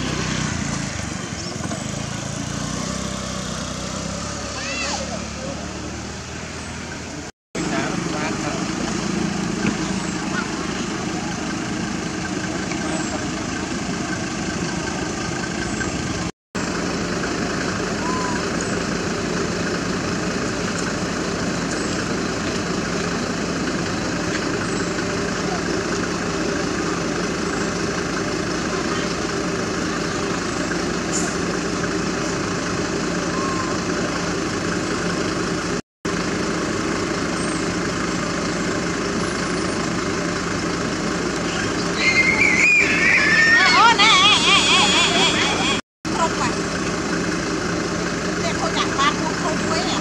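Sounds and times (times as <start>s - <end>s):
engine idling hum: 0.0s - 50.0s
bird chirps: 41.5s - 43.5s.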